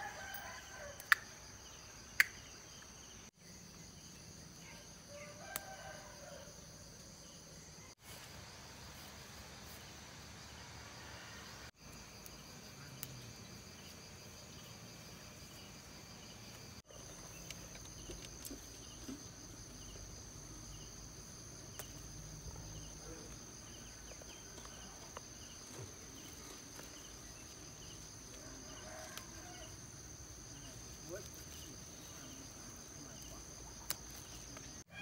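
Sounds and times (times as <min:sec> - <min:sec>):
cricket-like chirp: 0:00.0 - 0:35.0.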